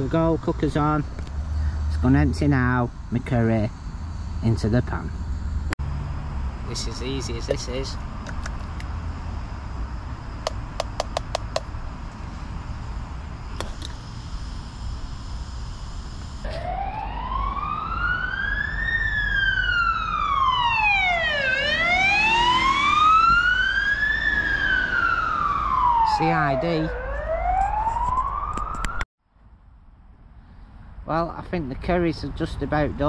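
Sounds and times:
low road traffic rumble: 0:00.0 - 0:33.0
emergency siren wailing: 0:16.4 - 0:29.0.

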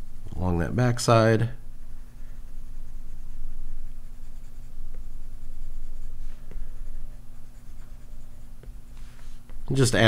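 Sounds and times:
low steady hum: 0:00.0 - 0:10.0
stylus stroking on glass screen: 0:02.4 - 0:09.6.

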